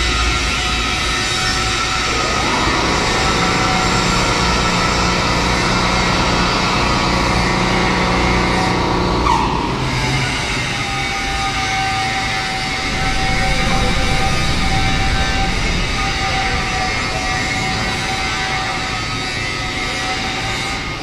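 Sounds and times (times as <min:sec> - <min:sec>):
industrial machinery rumble: 0:00.0 - 0:21.0
high whining tones: 0:09.8 - 0:21.0
sliding tone: 0:12.7 - 0:18.4.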